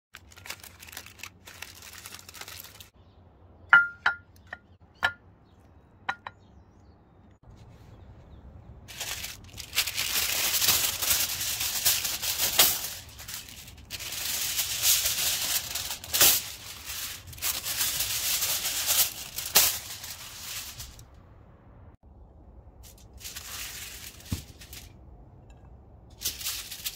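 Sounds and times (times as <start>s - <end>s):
aluminium foil crinkling: 0.1s - 3.0s, 8.9s - 21.1s, 22.8s - 26.9s.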